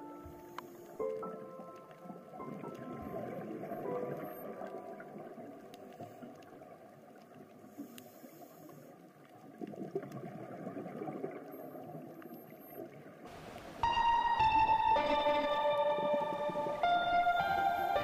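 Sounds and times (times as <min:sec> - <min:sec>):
underwater rushing: 0:00.0 - 0:18.0
faint clicks: 0:00.2 - 0:10.5, 0:11.3 - 0:13.8.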